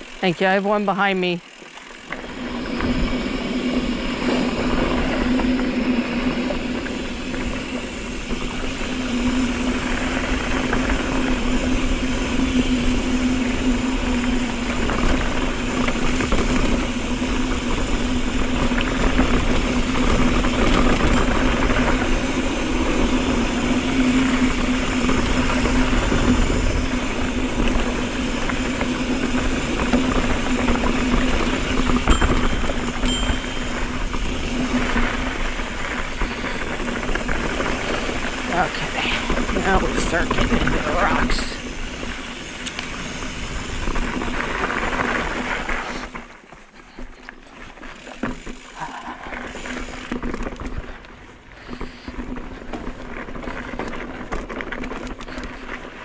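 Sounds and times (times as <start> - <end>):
bike rattling over rough ground: 0.0 - 56.0
bike tires humming on dirt: 0.0 - 56.0
wind rumble on microphone: 2.2 - 46.4.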